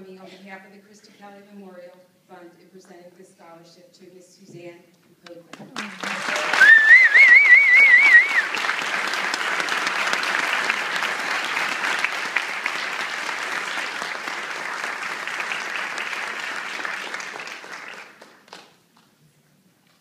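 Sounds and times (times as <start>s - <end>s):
audience clapping: 5.3s - 19.2s
person whistling: 6.6s - 8.5s.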